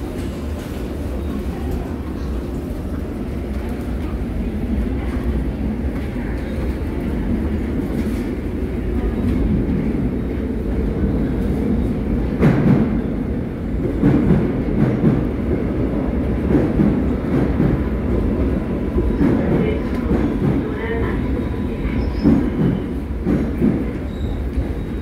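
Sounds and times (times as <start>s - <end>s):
train low rumble: 0.0s - 25.0s
train wheels clacking: 22.0s - 25.0s.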